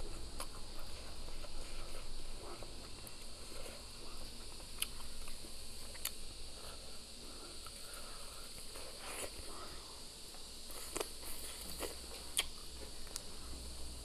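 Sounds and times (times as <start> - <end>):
chewing with wet mouth noises: 0.0 - 6.9, 10.3 - 13.6.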